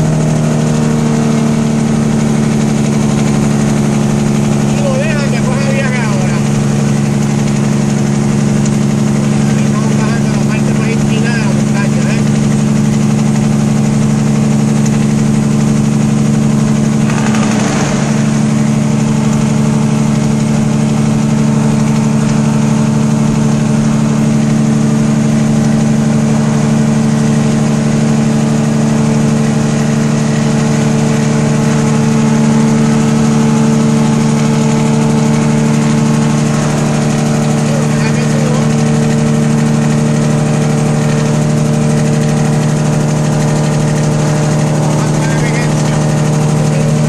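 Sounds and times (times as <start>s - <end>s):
truck diesel engine droning: 0.0s - 47.0s
rush of noise: 17.0s - 20.2s.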